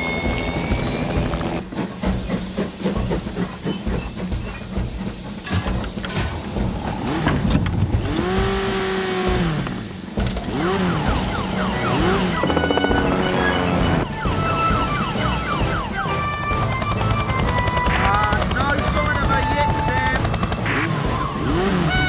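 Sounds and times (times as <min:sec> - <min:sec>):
background music: 0:00.0 - 0:22.0
cartoon siren wailing: 0:10.9 - 0:18.1.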